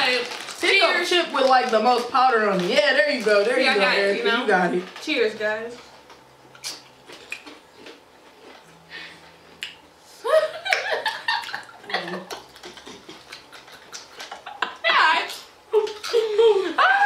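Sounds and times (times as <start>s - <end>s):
people talking: 0.0s - 5.8s, 11.9s - 12.3s, 14.8s - 17.0s
chewing crunchy chips: 6.0s - 8.7s, 12.3s - 14.4s
people laughing: 10.2s - 14.9s.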